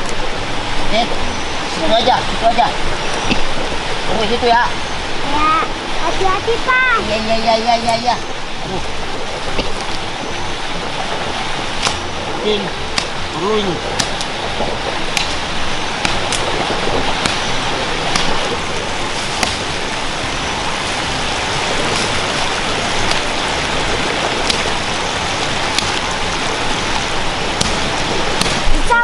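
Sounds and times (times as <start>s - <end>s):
steady rushing noise: 0.0s - 29.0s
machete chopping branch: 11.8s - 12.0s, 13.0s - 13.2s, 14.0s - 14.3s, 15.1s - 15.4s, 17.2s - 17.5s, 18.1s - 18.4s, 19.4s - 19.7s, 24.4s - 24.6s, 25.7s - 26.1s, 27.6s - 28.9s.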